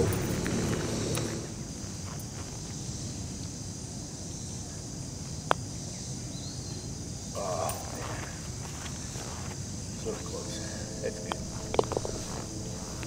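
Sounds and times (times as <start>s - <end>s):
insects humming: 0.0s - 13.0s
putter striking golf ball: 11.2s - 13.0s.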